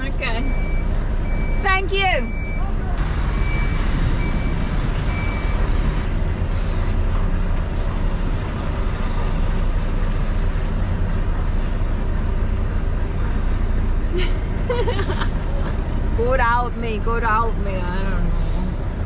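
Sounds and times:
lorry diesel engine droning: 0:00.0 - 0:19.0
reversing beeps: 0:00.3 - 0:05.8
short hiss of air: 0:06.5 - 0:07.0, 0:18.3 - 0:18.8.

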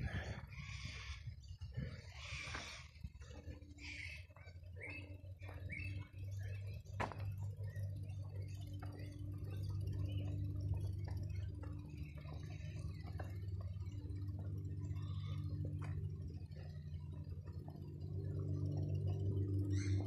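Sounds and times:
steady low hum: 0:00.0 - 0:20.0
footsteps on dry grass: 0:02.2 - 0:07.9.

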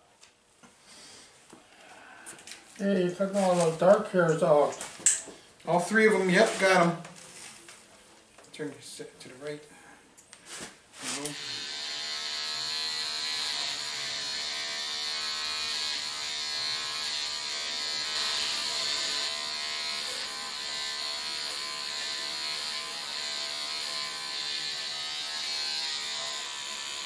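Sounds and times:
electric hair clippers buzzing: 0:11.2 - 0:27.0.

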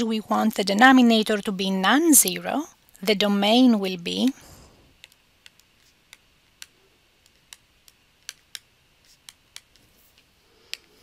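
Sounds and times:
stylus tapping on tablet: 0:05.0 - 0:09.9.

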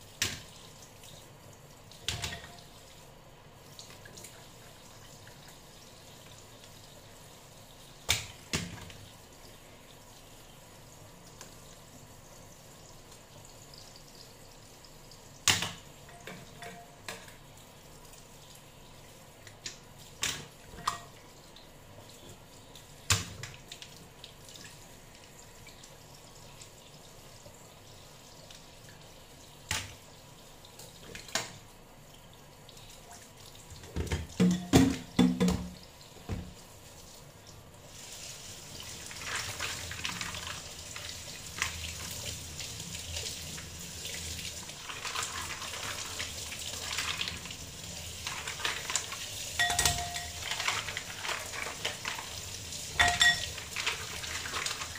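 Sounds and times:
tap running into metal sink: 0:33.8 - 0:36.6.

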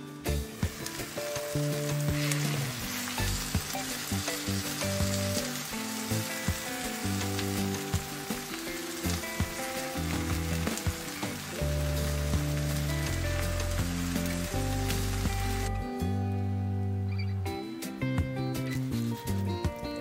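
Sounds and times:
soft background music: 0:00.0 - 0:20.0
omelette sizzling in a frying pan: 0:00.3 - 0:15.7.

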